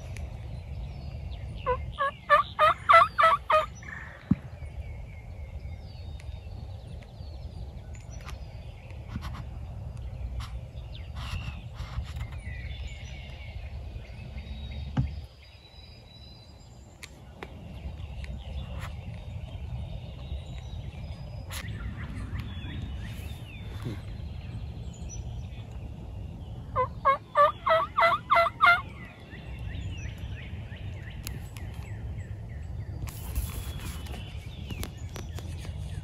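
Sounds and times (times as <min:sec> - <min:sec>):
low background rumble: 0:00.0 - 0:36.0
songbirds chirping: 0:00.0 - 0:36.0
turkey gobbling: 0:01.6 - 0:04.1, 0:26.7 - 0:28.8.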